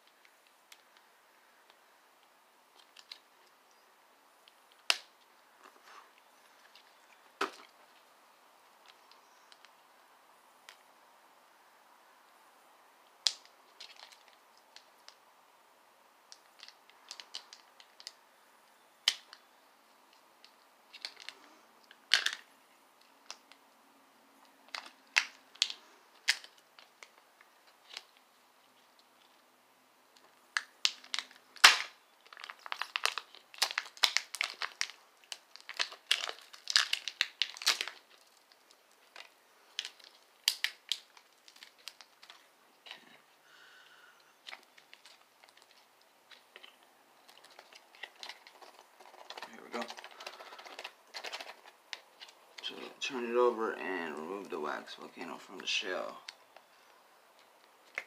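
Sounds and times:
plastic toy clicking and creaking: 0:44.4 - 0:52.4.

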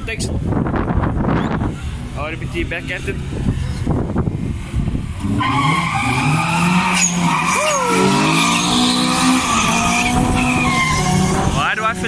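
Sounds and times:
car engines revving: 0:00.0 - 0:12.0
tyres squealing: 0:05.3 - 0:12.0.

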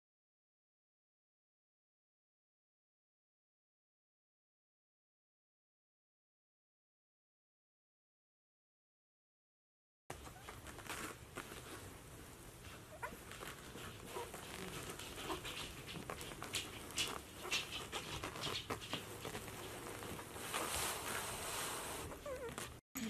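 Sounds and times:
puppy snuffling: 0:10.1 - 0:22.8
rustling against bedding: 0:10.1 - 0:22.8
steady hiss: 0:18.6 - 0:22.2.

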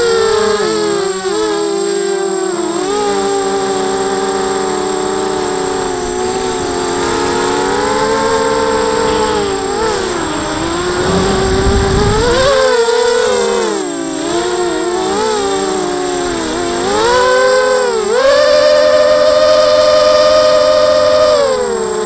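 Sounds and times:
quadcopter motors whining: 0:00.0 - 0:22.0
low whooshing noise: 0:09.4 - 0:12.6.

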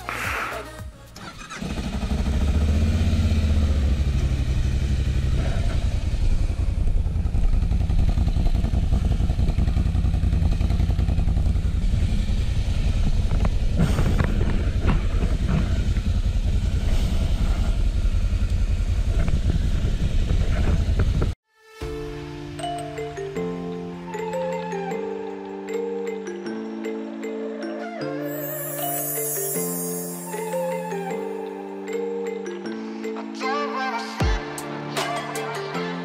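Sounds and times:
engine idling: 0:01.0 - 0:21.4.

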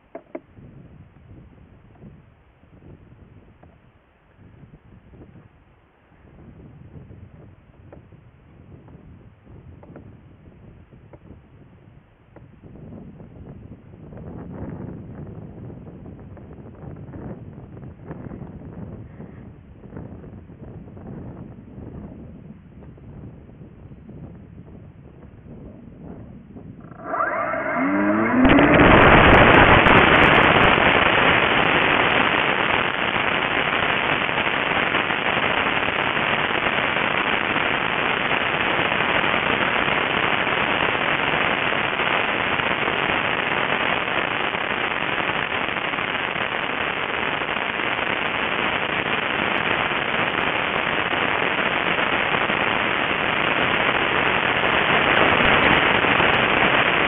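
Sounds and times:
rushing air: 0:26.8 - 0:34.8.

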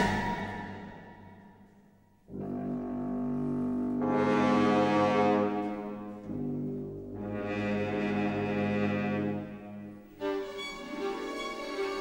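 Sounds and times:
brass sustained chords: 0:02.3 - 0:10.1.

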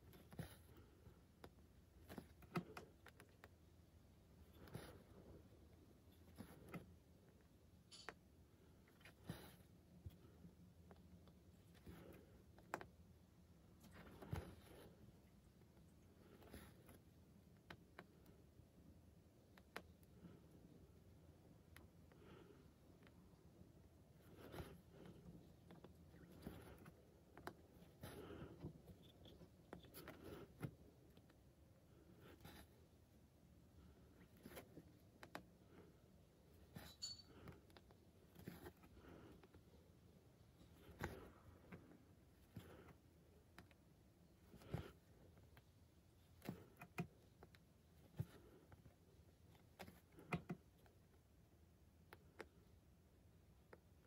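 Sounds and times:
thread rustling through fabric: 0:22.2 - 0:33.2.

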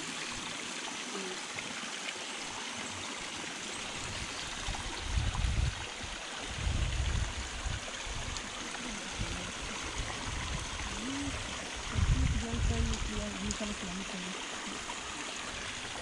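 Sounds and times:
stream water rushing: 0:00.0 - 0:16.0
low rumbles on microphone: 0:05.0 - 0:05.8, 0:06.5 - 0:08.4, 0:09.2 - 0:13.3.

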